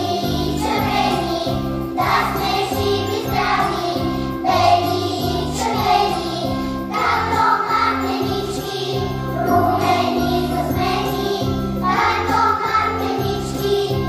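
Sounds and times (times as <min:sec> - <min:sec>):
children singing together: 0:00.0 - 0:14.0
instrumental backing track: 0:06.3 - 0:13.2.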